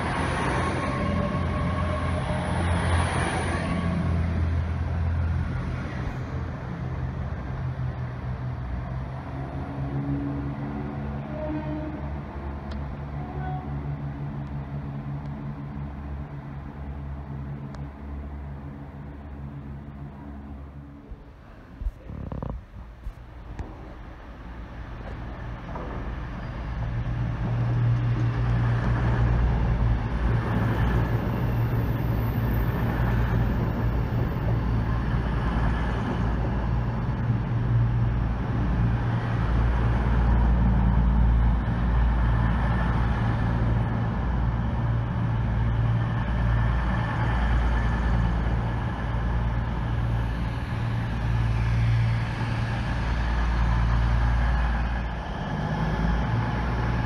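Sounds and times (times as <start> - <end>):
diesel train passing: 0.0 - 57.0.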